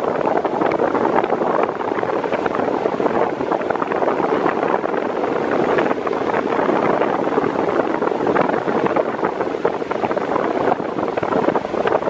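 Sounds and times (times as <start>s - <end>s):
fan blowing air: 0.0s - 12.0s
wind buffeting microphone: 0.0s - 12.0s.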